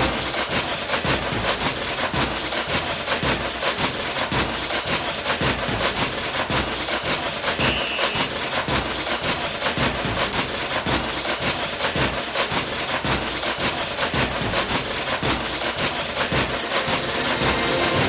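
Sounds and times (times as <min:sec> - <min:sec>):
rapid sharp knocks: 0:00.0 - 0:18.0.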